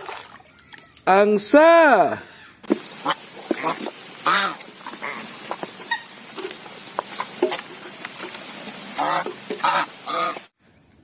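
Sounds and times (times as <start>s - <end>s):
geese bills pecking in feed: 2.7s - 10.5s
goose honking: 3.0s - 7.6s, 8.8s - 10.5s.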